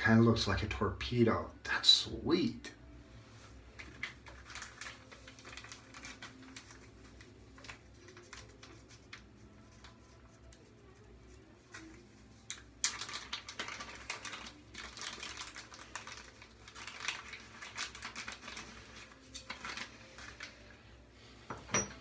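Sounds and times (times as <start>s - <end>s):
plastic wrapping crinkling: 3.4s - 10.6s, 11.6s - 21.0s.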